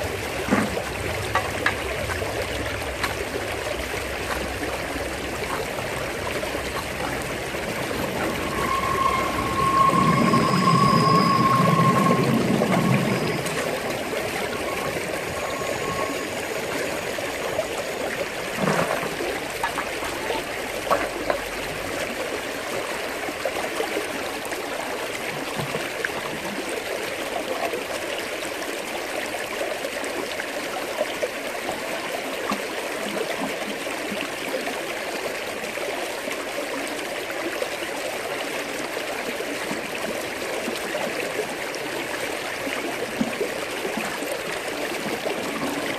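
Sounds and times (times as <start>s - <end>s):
steady tone: 0.0s - 18.4s
water rushing through sluice box: 0.0s - 45.9s.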